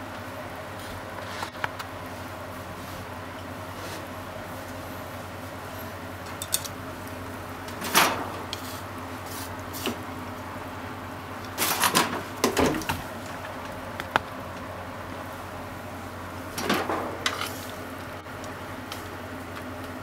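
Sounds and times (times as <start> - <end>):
low kitchen hum: 0.0 - 20.0
frying pan scraping on hob grate: 7.6 - 10.0, 16.4 - 18.0.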